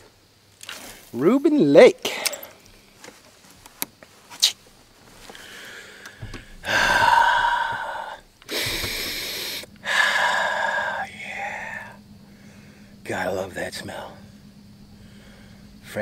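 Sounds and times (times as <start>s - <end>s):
faint clicks: 5.2s - 9.9s
man breathing deeply: 5.2s - 13.0s, 14.1s - 15.8s.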